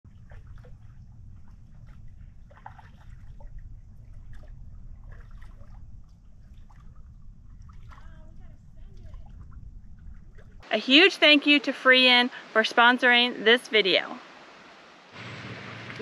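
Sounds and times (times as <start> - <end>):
low rumble: 0.1 - 10.7
paddle dipping and dripping: 0.1 - 16.0
water splashing and trickling: 0.1 - 16.0.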